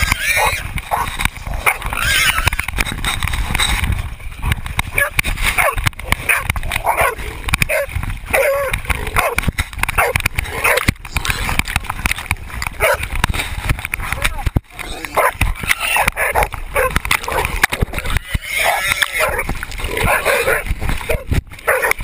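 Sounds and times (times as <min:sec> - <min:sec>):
dogs barking and yipping: 0:00.0 - 0:02.8, 0:04.8 - 0:11.0, 0:12.7 - 0:13.2, 0:14.9 - 0:22.0.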